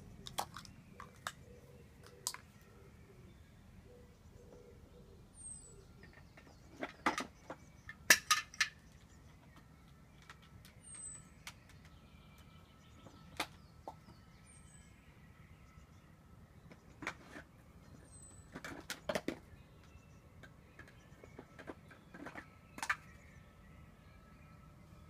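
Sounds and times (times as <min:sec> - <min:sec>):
plastic toys knocking and clicking: 0:00.2 - 0:02.5, 0:06.0 - 0:10.8, 0:16.7 - 0:17.5, 0:18.4 - 0:23.2.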